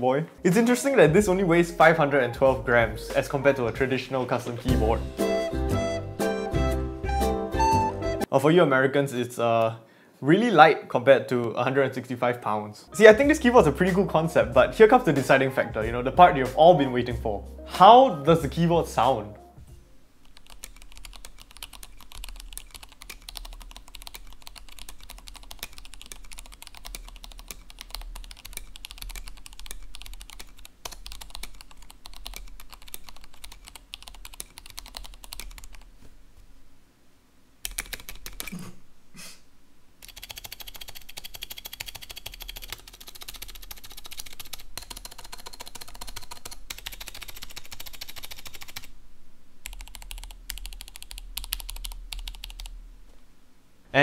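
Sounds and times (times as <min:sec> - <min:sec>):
mechanical keyboard typing: 0:20.2 - 0:35.9, 0:37.6 - 0:38.6, 0:40.0 - 0:48.9, 0:49.7 - 0:52.7.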